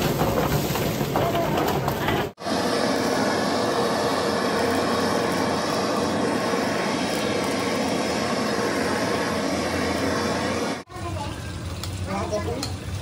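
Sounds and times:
gas blowtorch burning: 0:00.0 - 0:13.0.

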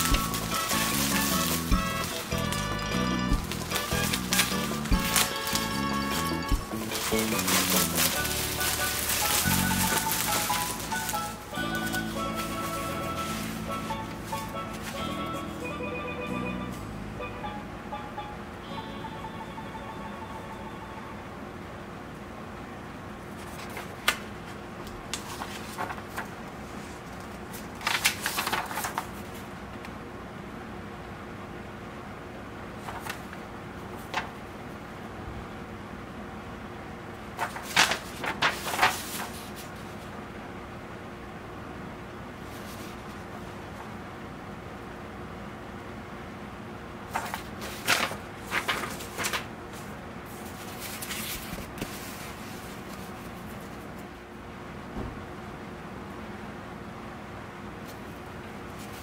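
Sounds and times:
paper snapping: 0:00.0 - 0:05.9, 0:06.5 - 0:12.5, 0:27.8 - 0:29.1, 0:37.4 - 0:39.4
paper rustling and crinkling: 0:00.0 - 0:15.6, 0:23.4 - 0:29.5, 0:32.8 - 0:34.4, 0:37.4 - 0:40.1, 0:42.5 - 0:43.9, 0:47.1 - 0:54.1, 0:58.7 - 0:59.0
foam pad rustling: 0:00.0 - 0:15.8.

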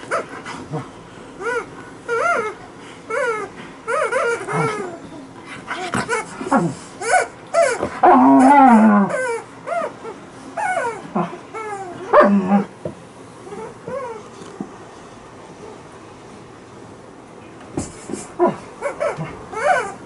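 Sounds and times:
dog whining: 0:00.0 - 0:00.8, 0:01.4 - 0:12.8, 0:13.4 - 0:14.7, 0:18.2 - 0:20.0
dog grumbling: 0:00.1 - 0:05.1, 0:05.7 - 0:09.9, 0:10.6 - 0:12.8.

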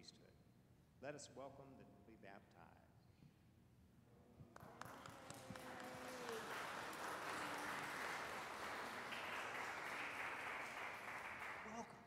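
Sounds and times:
congregation applauding: 0:04.5 - 0:12.0.

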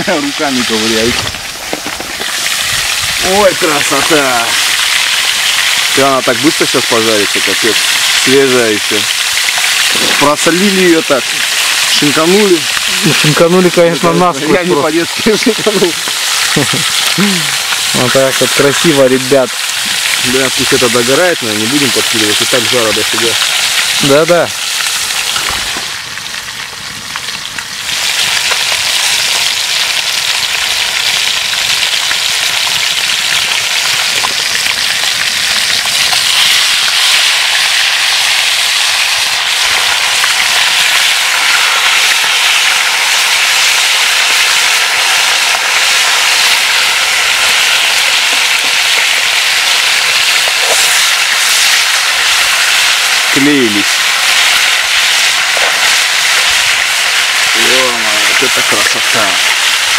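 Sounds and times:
fish sizzling in oil: 0:00.0 - 0:59.9.

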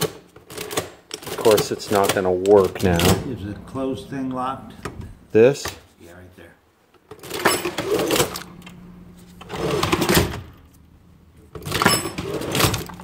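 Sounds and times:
cash register mechanism clattering: 0:00.0 - 0:03.3, 0:07.1 - 0:08.8, 0:09.4 - 0:10.6, 0:11.5 - 0:13.0.

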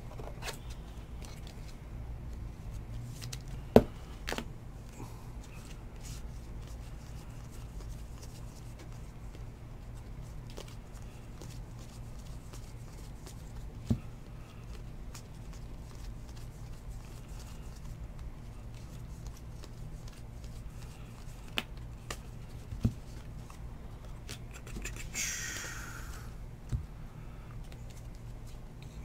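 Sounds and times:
steady low hum: 0:00.0 - 0:29.0
cards being flipped by hand: 0:05.5 - 0:26.8.

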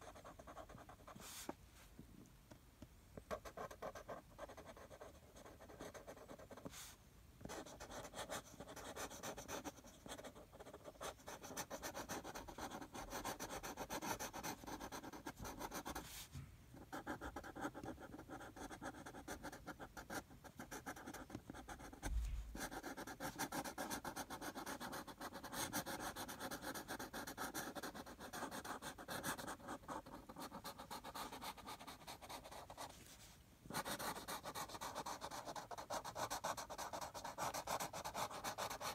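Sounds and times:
marker scribbling on card: 0:03.3 - 0:16.2, 0:16.8 - 0:38.9
soft low bump: 0:22.0 - 0:22.6.

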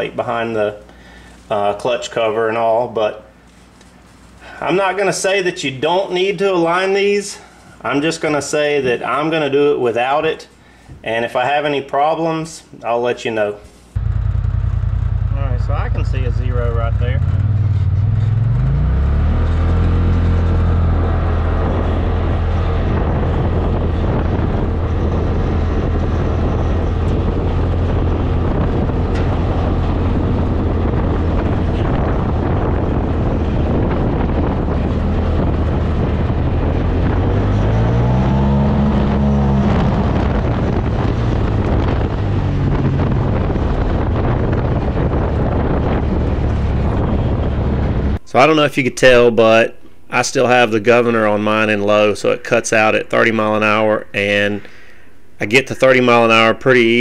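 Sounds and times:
engine running at high revs: 0:14.0 - 0:48.2.

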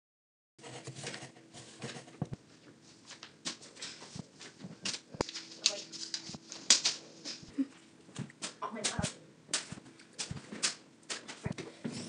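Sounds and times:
paper rustling and creasing: 0:00.6 - 0:07.5
faint steady hum: 0:00.6 - 0:12.0.

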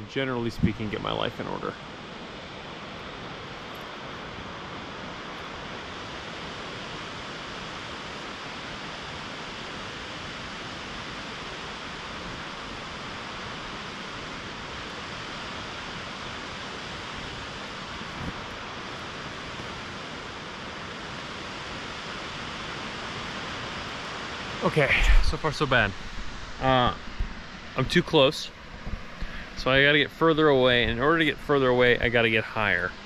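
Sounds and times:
waterfall rushing over rocks: 0:01.8 - 0:28.3.

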